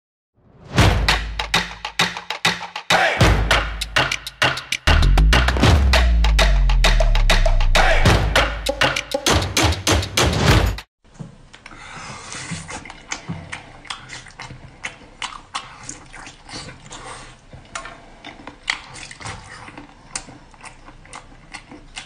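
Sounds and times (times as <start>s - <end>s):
drum-heavy music: 0.7s - 10.9s
man chewing and lip-smacking: 11.5s - 22.0s.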